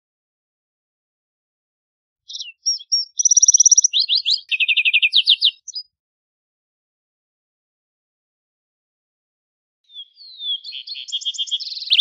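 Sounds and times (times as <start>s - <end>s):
sparrow singing: 2.3s - 6.0s, 9.9s - 12.0s.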